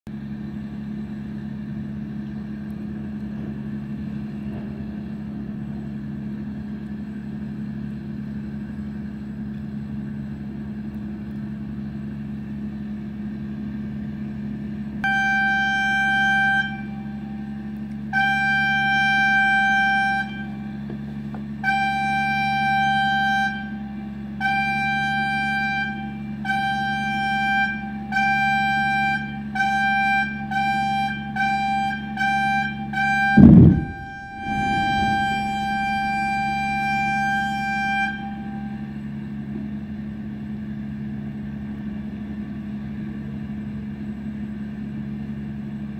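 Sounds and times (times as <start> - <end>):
idling engine hum: 0.1 - 45.9
warning horn tones: 15.0 - 21.0, 21.6 - 39.3.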